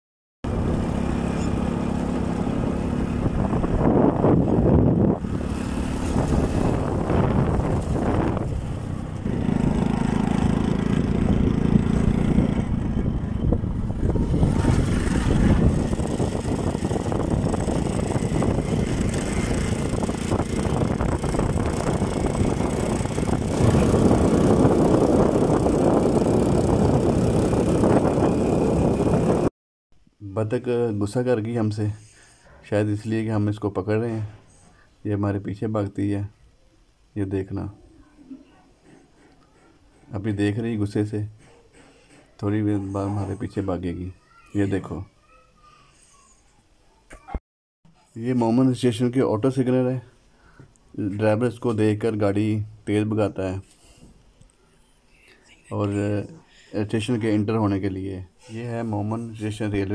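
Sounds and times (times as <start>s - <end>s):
vehicle engine driving: 0.4s - 29.5s.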